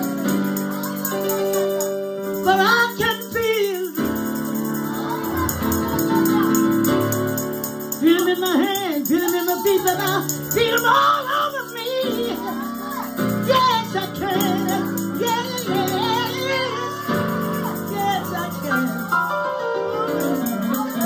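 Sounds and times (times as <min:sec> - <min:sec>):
woman singing gospel: 0:02.4 - 0:04.0, 0:08.0 - 0:19.1.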